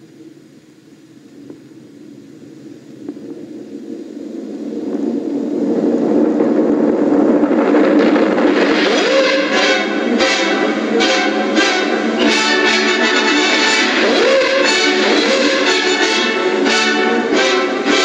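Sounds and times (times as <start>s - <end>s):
low noisy cartoon soundtrack: 7.8s - 18.0s.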